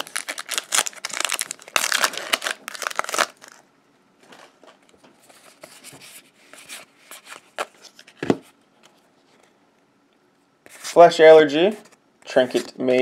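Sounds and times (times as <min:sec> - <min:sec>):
wrapper crinkling as torn open: 0:00.0 - 0:03.6.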